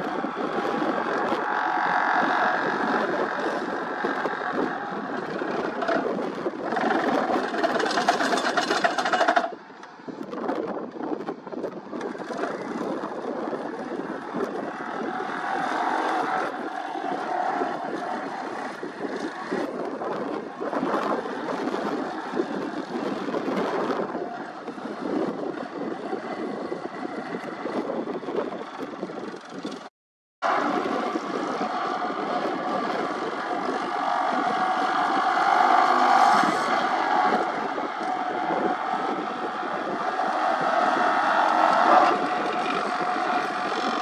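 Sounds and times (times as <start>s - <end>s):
excavator engine running: 0.0s - 44.0s
vibratory pile hammer: 2.4s - 9.6s.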